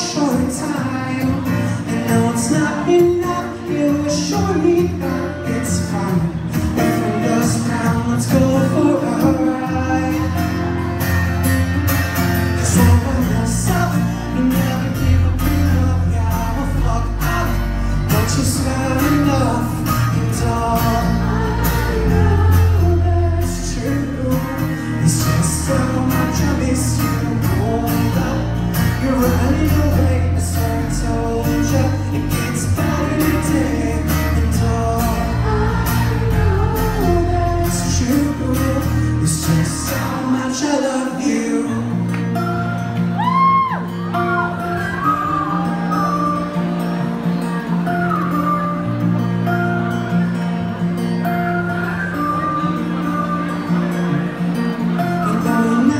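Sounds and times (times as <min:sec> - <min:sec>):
man singing: 0:00.0 - 0:11.0, 0:12.4 - 0:42.6, 0:51.9 - 0:55.9
strummed acoustic guitar: 0:00.0 - 0:55.9
heavy bass: 0:10.2 - 0:40.2.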